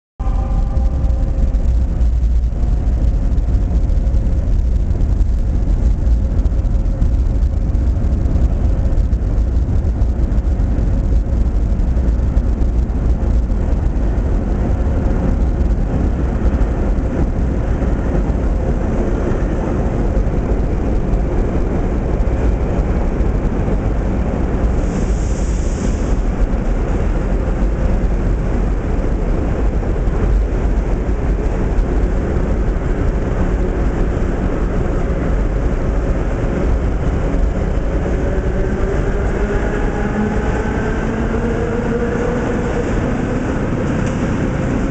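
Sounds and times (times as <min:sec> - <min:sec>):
train motor whine: 0:00.2 - 0:03.7
train wheels rumbling on rail: 0:00.2 - 0:44.9.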